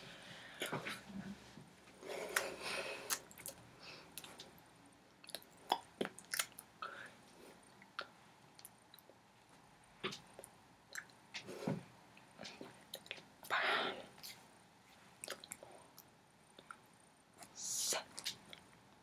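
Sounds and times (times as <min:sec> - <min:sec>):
lip smacks and breaths: 0:02.0 - 0:04.5.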